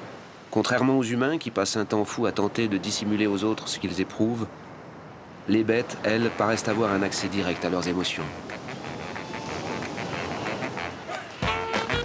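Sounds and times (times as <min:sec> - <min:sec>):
breaking surf: 0:02.5 - 0:12.0
birds honking and quacking: 0:06.2 - 0:11.8.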